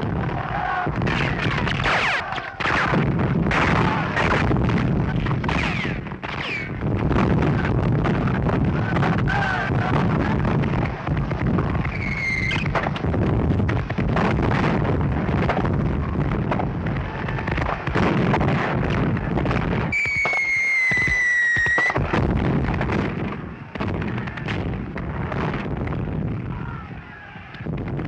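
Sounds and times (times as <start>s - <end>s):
rifle and machine-gun fire: 0.0s - 26.0s
explosions: 0.0s - 28.0s
falling whistle: 11.9s - 12.6s, 19.9s - 22.0s.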